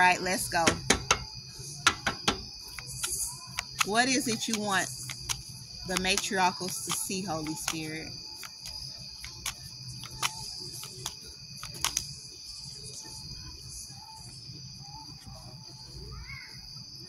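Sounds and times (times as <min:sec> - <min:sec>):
insects chirring: 0:00.0 - 0:17.0
cards being shuffled: 0:02.7 - 0:12.1.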